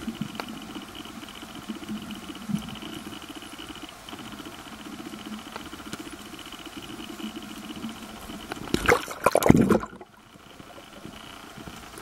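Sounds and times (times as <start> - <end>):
faint underwater crackle: 0.0 - 12.0
water bubbling and sloshing: 8.2 - 11.3.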